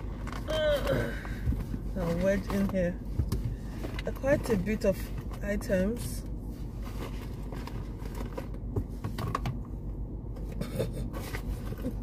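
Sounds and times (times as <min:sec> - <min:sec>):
rustling cosmetic packaging: 0:00.0 - 0:09.4
steady low hum: 0:00.0 - 0:12.0.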